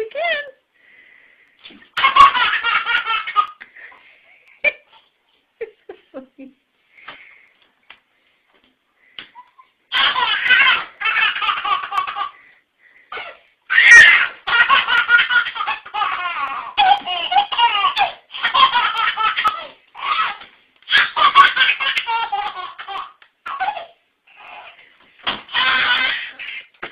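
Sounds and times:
baby laughing: 0:01.9 - 0:03.6, 0:09.3 - 0:12.4, 0:13.1 - 0:24.8, 0:25.5 - 0:26.9.

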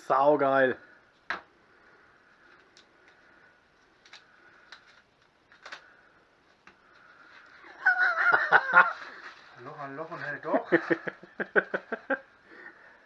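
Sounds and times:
clicks and rustles of unwrapping: 0:03.8 - 0:07.6.

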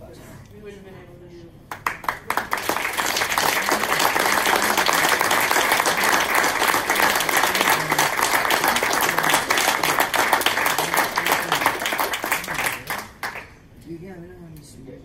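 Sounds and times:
people applauding: 0:01.7 - 0:13.6.

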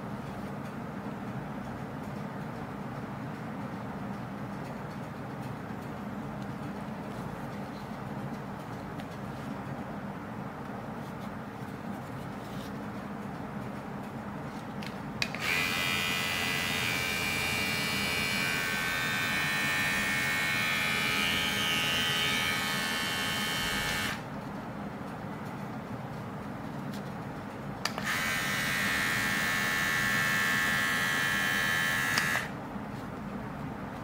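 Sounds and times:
hair clipper buzzing: 0:15.2 - 0:24.2, 0:27.9 - 0:32.5.

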